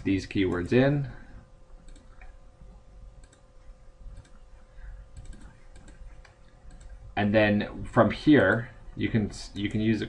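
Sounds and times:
faint steady hum: 0:00.0 - 0:10.0
computer mouse clicks: 0:01.8 - 0:02.4, 0:03.2 - 0:03.5, 0:04.1 - 0:04.4, 0:05.1 - 0:07.0.

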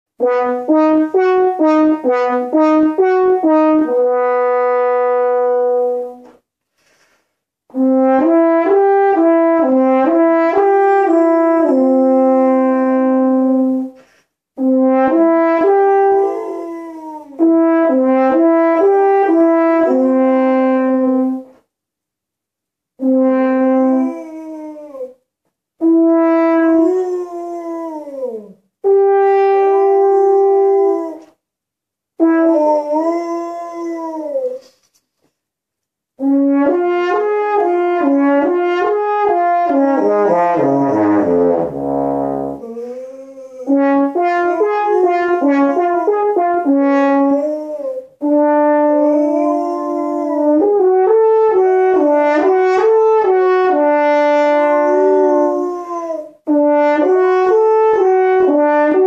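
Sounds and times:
french horn playing arpeggios: 0:00.2 - 0:06.2, 0:07.7 - 0:14.0, 0:14.6 - 0:21.5, 0:23.0 - 0:24.8, 0:25.8 - 0:27.2, 0:28.8 - 0:31.2, 0:32.2 - 0:33.2, 0:36.2 - 0:42.9, 0:43.6 - 0:59.0
dog howling: 0:16.1 - 0:17.4, 0:48.8 - 0:50.8, 0:54.7 - 0:56.4.

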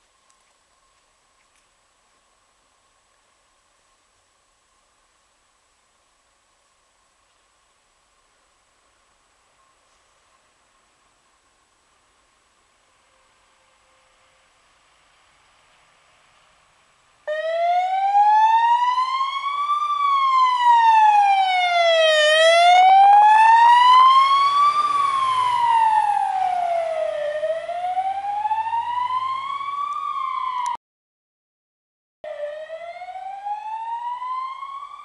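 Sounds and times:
fire engine siren wailing: 0:17.2 - 0:30.8, 0:32.2 - 0:35.0.

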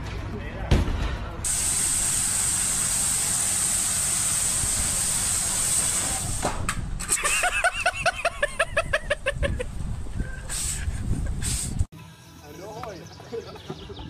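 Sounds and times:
pressure washer spraying water: 0:01.5 - 0:06.7.

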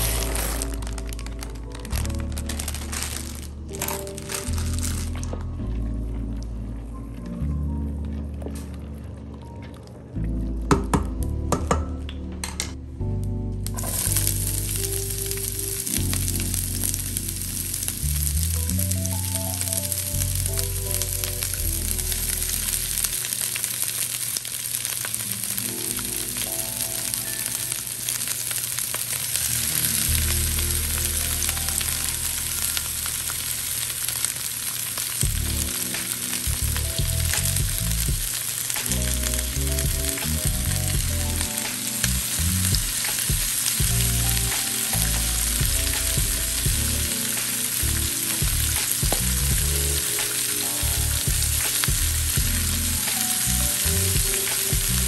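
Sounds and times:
background music with low notes: 0:00.0 - 0:24.1, 0:24.9 - 0:34.1, 0:35.0 - 0:55.0
vegetables sizzling in a skillet: 0:13.8 - 0:55.0.

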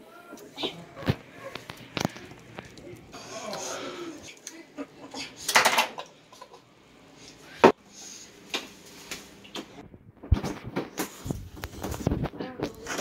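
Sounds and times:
kitchen clicks and knocks: 0:05.5 - 0:06.0.

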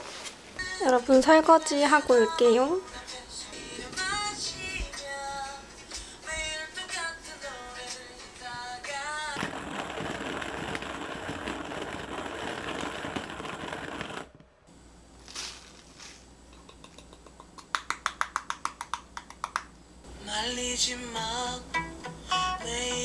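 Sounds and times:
soft rustling: 0:15.2 - 0:16.3.

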